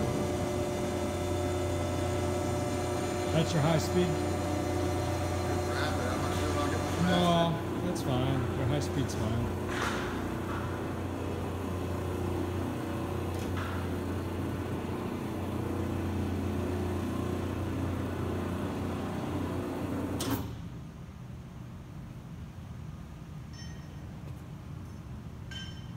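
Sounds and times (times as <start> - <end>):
electric drive humming: 0.0 - 20.4.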